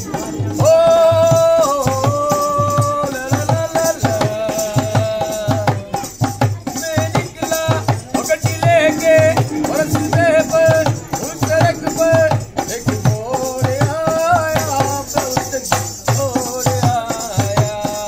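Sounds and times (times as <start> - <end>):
hand drum beating rhythm: 0.0 - 18.0
high held melody: 3.4 - 15.2.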